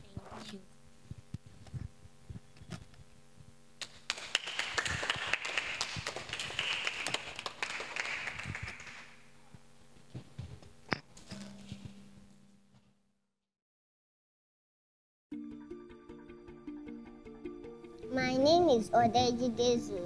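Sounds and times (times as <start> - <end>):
group clapping: 3.8 - 9.3.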